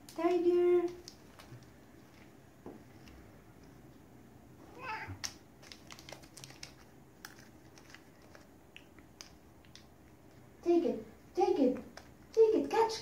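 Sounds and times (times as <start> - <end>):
cat meowing softly: 4.7 - 5.2.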